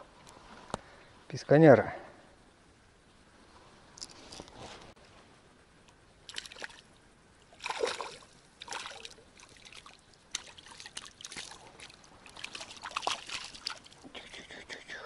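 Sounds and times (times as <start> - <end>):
water splashing in shallows: 6.3 - 14.2.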